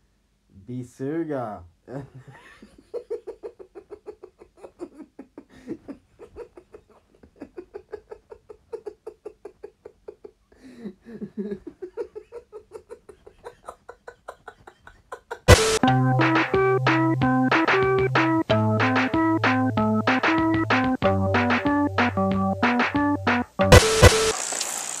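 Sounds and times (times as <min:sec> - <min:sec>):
person laughing in rapid bursts: 0:01.9 - 0:16.5.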